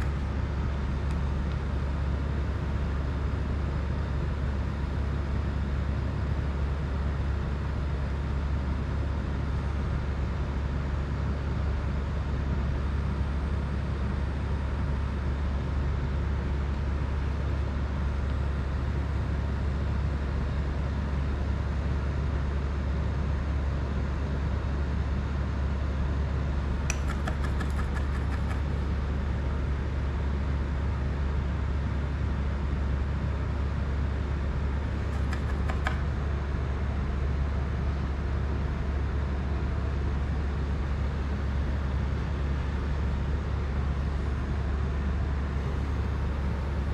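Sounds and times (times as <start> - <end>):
quick clicks: 26.9 - 28.8, 35.0 - 36.2.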